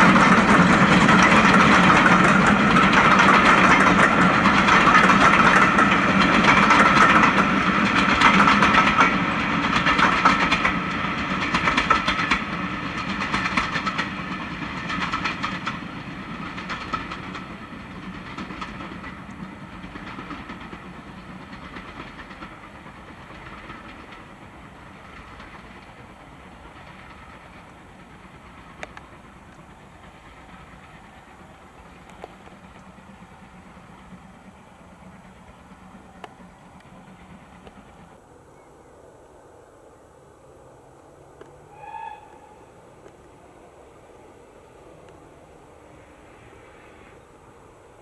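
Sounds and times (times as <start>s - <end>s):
train clattering over rail joints: 0.0s - 38.2s.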